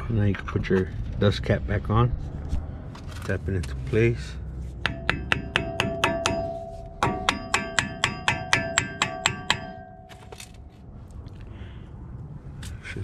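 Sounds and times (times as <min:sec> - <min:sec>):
hammer tapping metal cap: 0:04.8 - 0:10.0.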